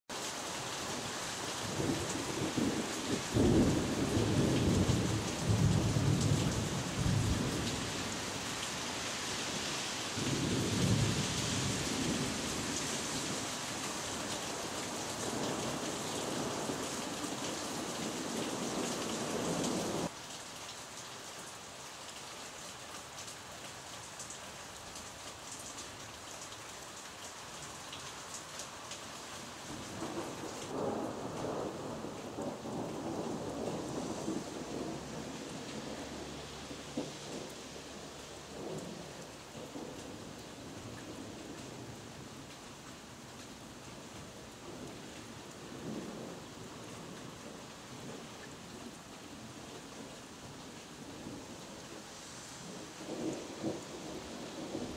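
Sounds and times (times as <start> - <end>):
rain hiss: 0.1 - 54.9
thunder rumbling: 30.0 - 40.2, 52.6 - 54.9.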